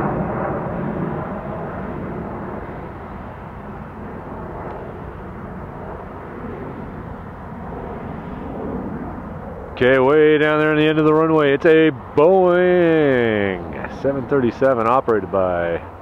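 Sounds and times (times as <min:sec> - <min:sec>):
distant jet rushing: 0:00.0 - 0:16.0.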